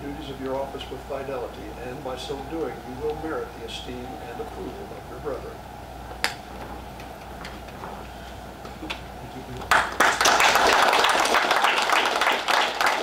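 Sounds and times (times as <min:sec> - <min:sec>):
audience applause: 0:09.7 - 0:13.0.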